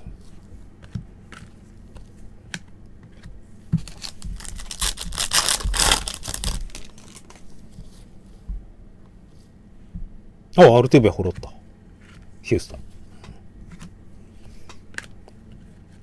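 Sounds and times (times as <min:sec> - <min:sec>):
foil wrapper tearing and crinkling: 0:03.8 - 0:07.4.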